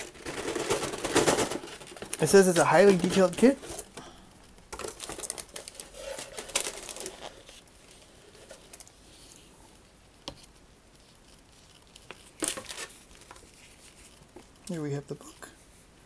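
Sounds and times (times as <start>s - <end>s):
paper rustling: 0.0s - 3.9s, 4.8s - 9.5s, 10.3s - 14.5s.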